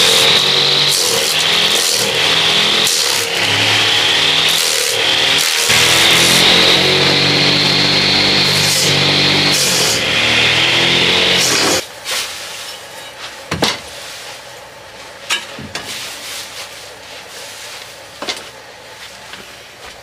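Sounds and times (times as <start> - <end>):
grass chopper motor running: 0.0 - 11.8
hoe scraping grass: 0.0 - 12.7.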